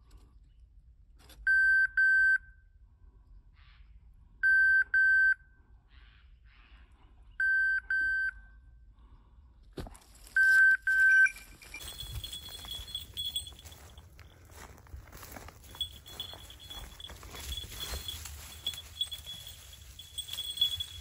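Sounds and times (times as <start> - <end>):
high electronic collar beeps: 10.4 - 13.7.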